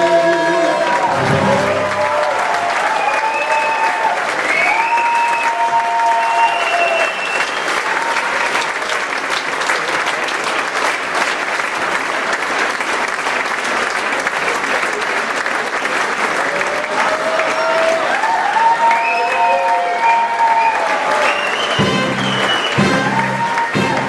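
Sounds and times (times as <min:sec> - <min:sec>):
audience applauding: 0:00.0 - 0:24.0
long held cheers: 0:00.1 - 0:09.0, 0:16.4 - 0:24.0.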